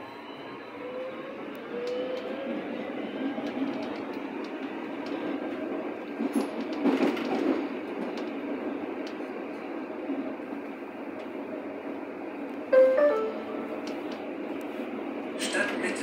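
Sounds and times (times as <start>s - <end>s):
train wheel and rail noise: 0.0s - 16.0s.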